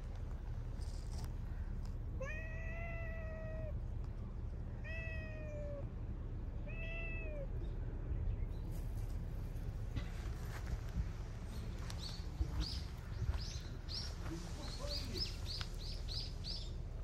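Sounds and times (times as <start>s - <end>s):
cat meowing: 2.2s - 3.8s, 4.8s - 5.9s, 6.6s - 7.5s.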